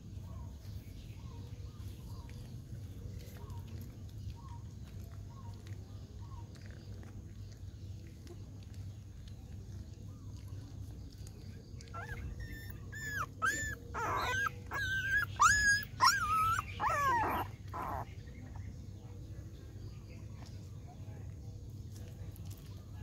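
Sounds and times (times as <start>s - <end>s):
puppies whimpering and yelping: 11.8s - 18.1s.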